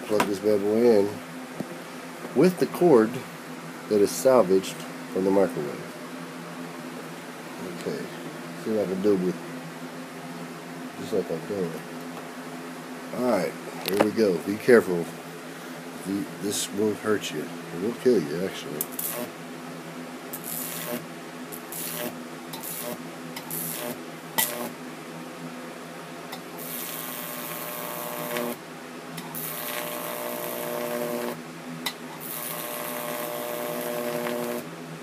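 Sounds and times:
electric arc buzzing and hissing: 0:17.8 - 0:19.4, 0:20.3 - 0:24.8, 0:26.4 - 0:28.6, 0:29.2 - 0:31.4, 0:32.1 - 0:34.7
sharp electric snaps: 0:18.8 - 0:19.3, 0:20.3 - 0:24.8, 0:26.3 - 0:28.6, 0:29.2 - 0:34.7.

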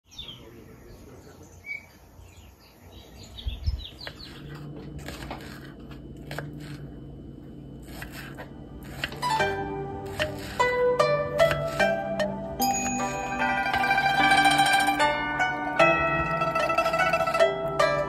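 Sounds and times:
birds chirping: 0:00.0 - 0:04.8
low steady hum: 0:00.4 - 0:18.0
knife slicing mango: 0:04.0 - 0:06.9, 0:07.8 - 0:12.4.

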